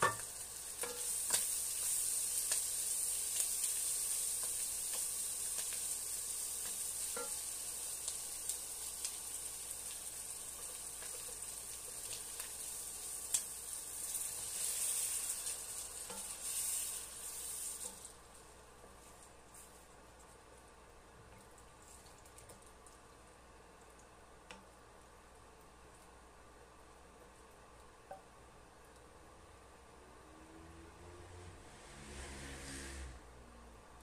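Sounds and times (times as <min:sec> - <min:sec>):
meat and vegetables sizzling: 0:00.0 - 0:19.8.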